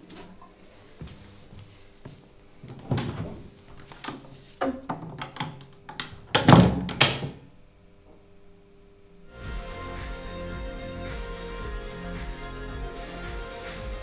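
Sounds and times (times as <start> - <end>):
door being handled: 2.7 - 7.4.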